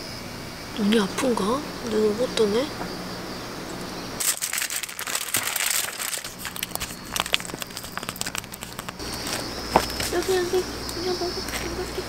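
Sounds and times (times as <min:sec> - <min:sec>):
plastic pouch crinkling: 0:04.2 - 0:10.5.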